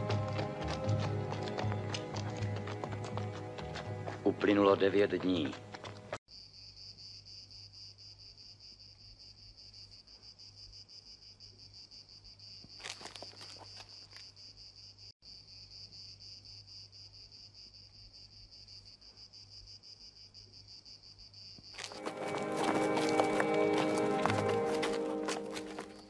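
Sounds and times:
insects trilling: 6.3s - 26.0s.

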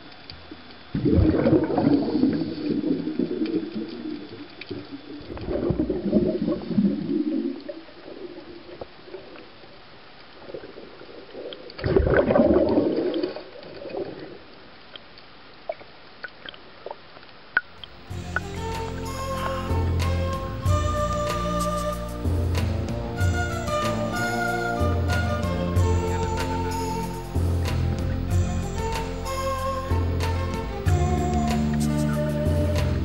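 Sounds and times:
underwater breath bubbles gurgling: 0.9s - 9.6s, 10.4s - 14.5s
music: 18.0s - 33.0s.

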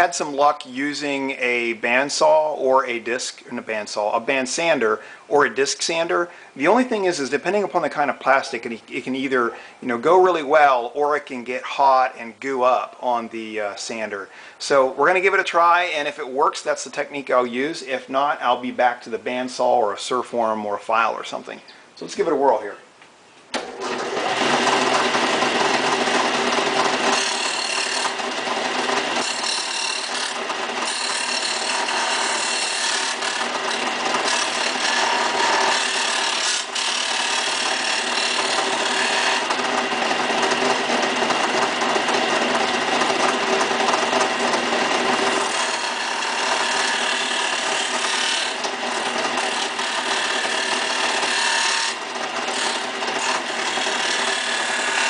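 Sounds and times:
sander grinding plastic: 23.6s - 55.0s.

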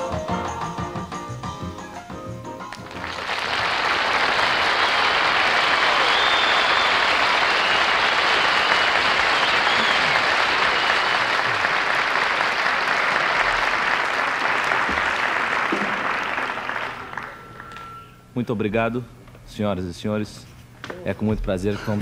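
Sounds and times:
audience applauding: 2.7s - 17.9s.

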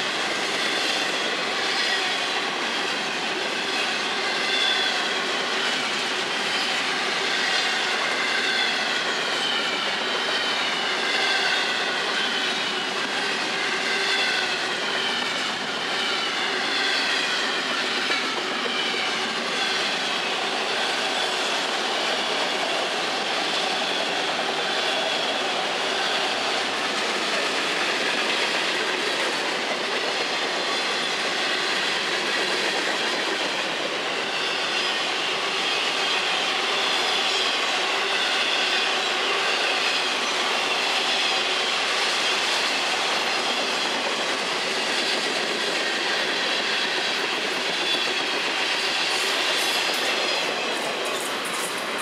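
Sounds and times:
high wheel squeal: 0.0s - 52.0s
train wheels rumbling on rail: 0.0s - 52.0s.

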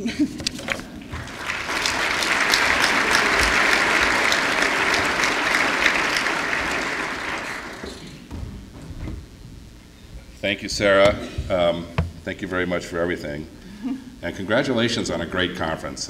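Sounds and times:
audience applauding: 0.5s - 8.4s.

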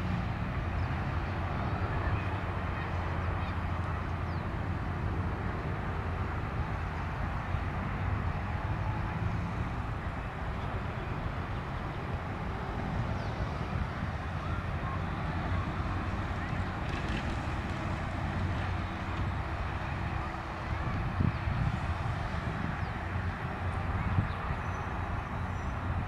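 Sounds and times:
distant jet engines taxiing: 0.0s - 26.0s.

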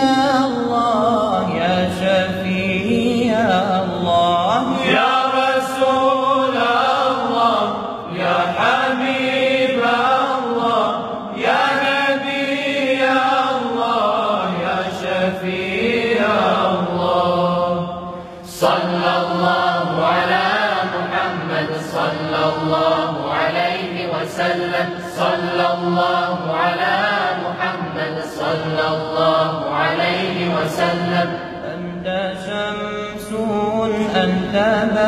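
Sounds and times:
men's voices singing beneath: 0.0s - 35.0s.

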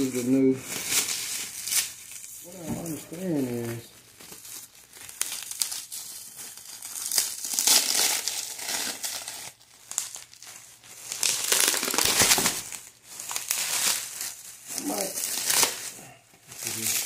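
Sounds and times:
packaging crinkling: 0.0s - 17.0s.

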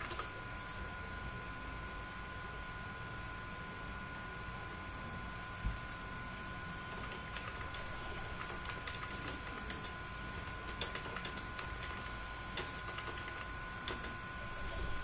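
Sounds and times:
faint high hum: 0.0s - 15.0s
keyboard keys clicking: 10.6s - 14.8s.

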